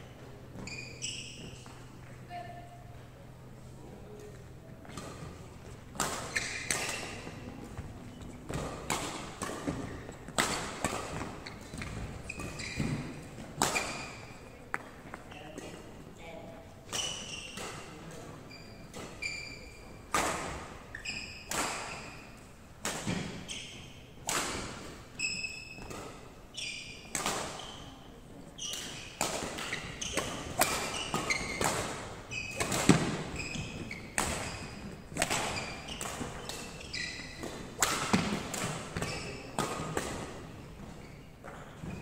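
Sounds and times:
shoes squeaking on wooden floor: 0.1 - 2.3, 11.1 - 14.4, 18.4 - 20.0, 25.2 - 28.0, 28.6 - 37.6, 38.9 - 39.6, 40.7 - 42.0
racket hitting shuttlecock: 4.8 - 7.9, 8.5 - 14.9, 18.9 - 26.3, 27.0 - 27.7, 28.6 - 42.0.

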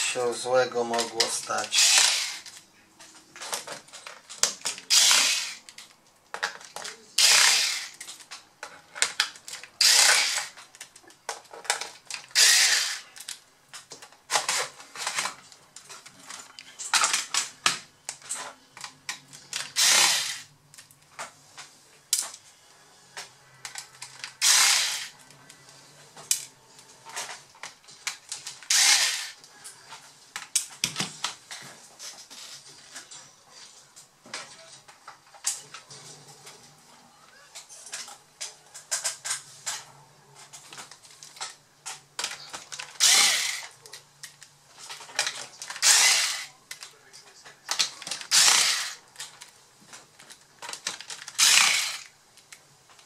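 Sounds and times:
electric screwdriver whirring: 1.7 - 2.5, 4.9 - 5.6, 7.2 - 8.0, 9.8 - 10.6, 12.3 - 13.1, 19.8 - 20.5, 24.4 - 25.2, 28.7 - 29.4, 43.0 - 43.7, 45.8 - 46.5, 48.3 - 49.0, 51.4 - 52.1.

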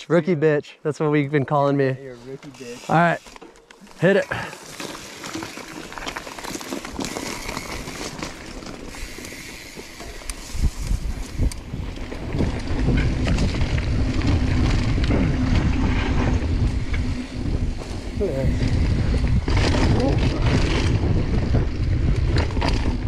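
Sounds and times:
bike tyres crunching on gravel: 2.0 - 23.0
wind buffeting microphone: 10.4 - 23.0.

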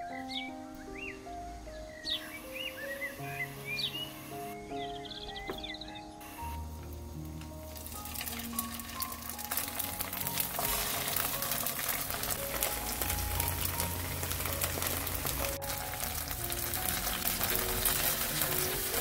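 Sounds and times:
soft background music: 0.0 - 19.0
tofu sizzling in oil: 7.6 - 19.0.

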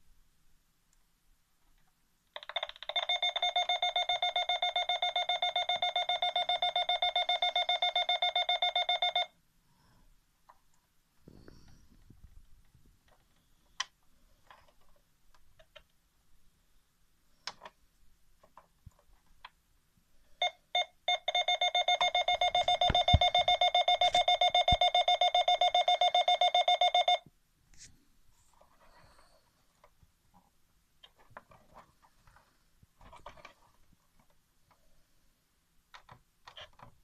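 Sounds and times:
short electronic beeps: 20.4 - 27.2.

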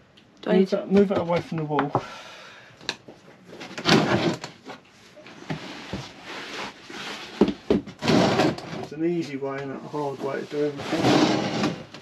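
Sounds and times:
wood scraping slide: 10.5 - 12.0.

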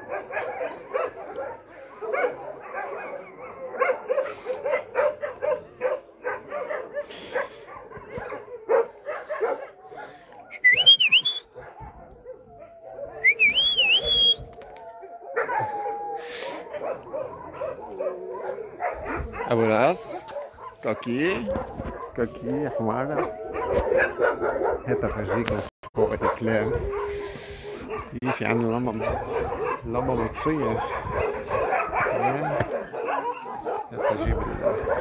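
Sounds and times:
dogs barking: 0.0 - 35.0
rising whistle-like tones: 10.5 - 11.5, 12.8 - 14.5.

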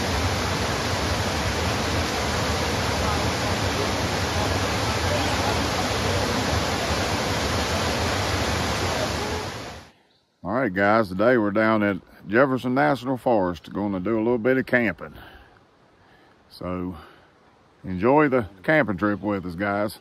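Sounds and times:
waterfall rushing: 0.0 - 9.9.

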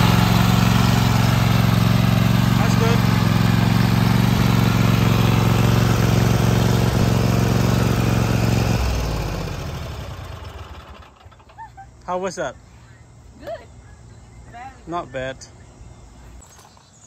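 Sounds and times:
riding mower engine running: 0.0 - 12.3.

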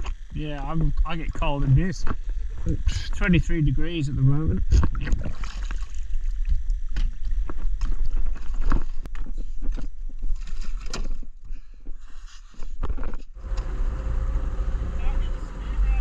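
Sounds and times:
knocks and splashes: 4.8 - 8.8
water sloshing against boat: 4.8 - 9.1.

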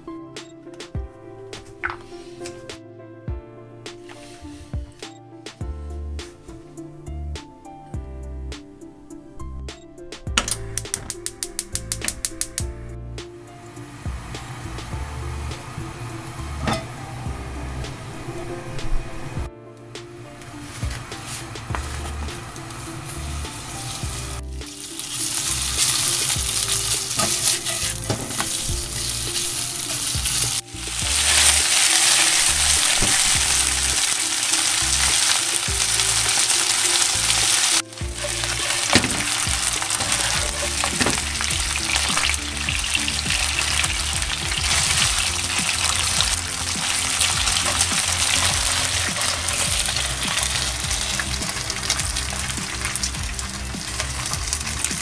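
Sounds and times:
pork sizzling in a pan: 13.6 - 18.0, 20.4 - 55.0.

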